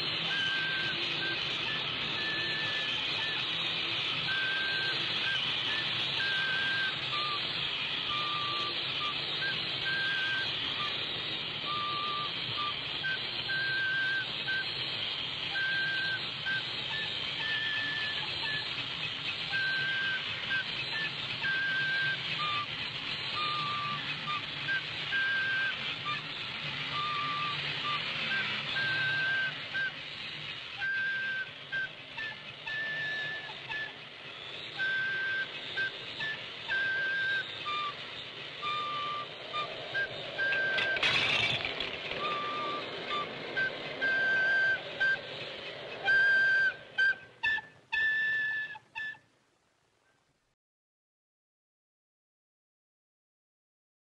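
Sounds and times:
toy robot whirring: 0.0 - 49.1
flute tune: 0.0 - 49.4
toy tower clattering down: 40.2 - 45.6.

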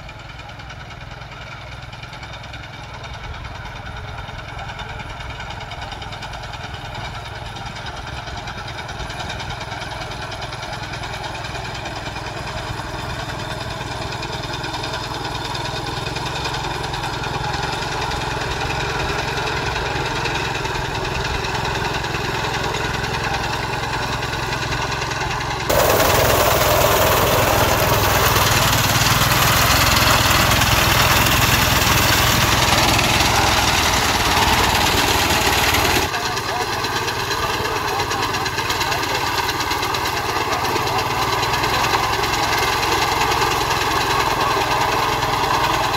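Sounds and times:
harvester engine running: 0.0 - 45.9.

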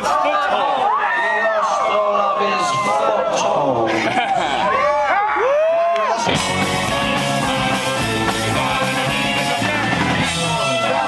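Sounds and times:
rock band playing: 6.2 - 11.0.

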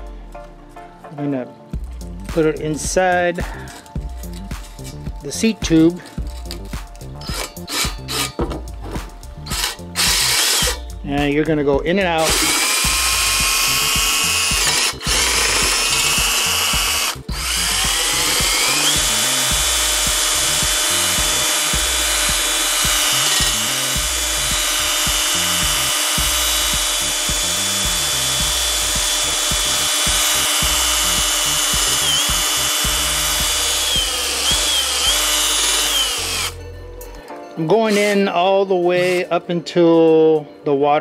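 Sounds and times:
cordless drill whine: 9.5 - 10.9, 12.2 - 36.6.

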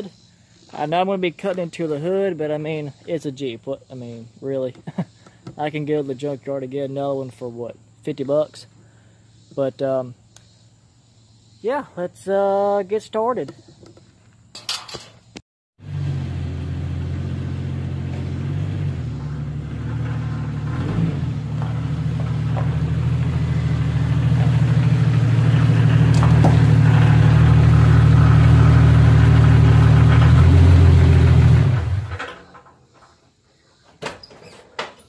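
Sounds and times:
car engine running: 15.8 - 32.2.

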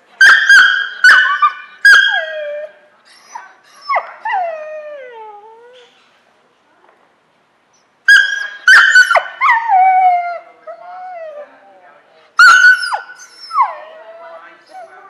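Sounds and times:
dog yipping: 0.2 - 4.5, 8.1 - 9.8, 12.4 - 13.9
dog whining: 0.2 - 6.0, 7.7 - 11.7, 12.4 - 15.0.

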